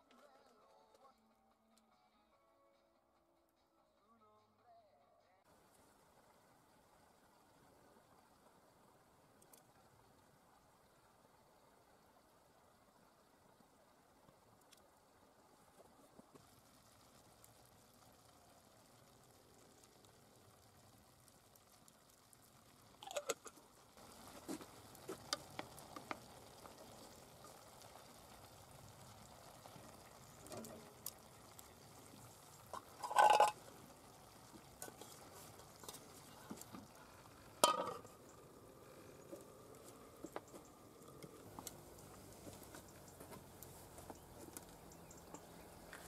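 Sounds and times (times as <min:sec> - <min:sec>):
utensil clatter: 0:32.7 - 0:33.6
wooden spoon stirring in metal pot: 0:32.7 - 0:33.6, 0:34.5 - 0:37.0
metal lid clanking onto pot: 0:32.8 - 0:33.6, 0:37.6 - 0:38.1.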